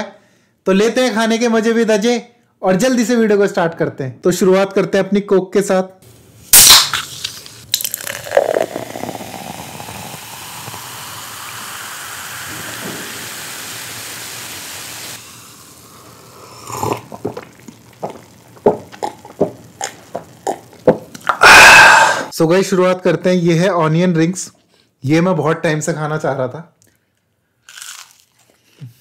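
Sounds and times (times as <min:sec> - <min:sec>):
soda fizzing as poured: 0:06.5 - 0:21.6.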